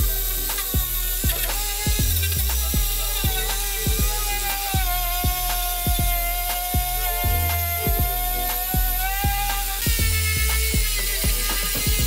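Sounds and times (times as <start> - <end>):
angle grinder sanding metal: 0.0 - 12.0
music with drum beat: 0.0 - 12.0.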